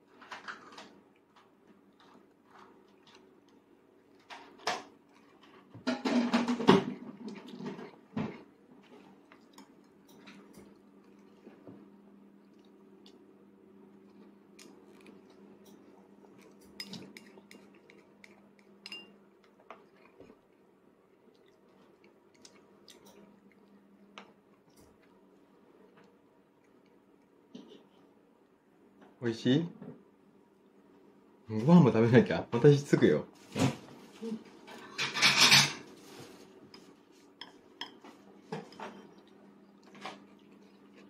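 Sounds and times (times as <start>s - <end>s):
faint steady hum: 0.0s - 41.0s
chopsticks tapping a plate: 18.8s - 19.1s.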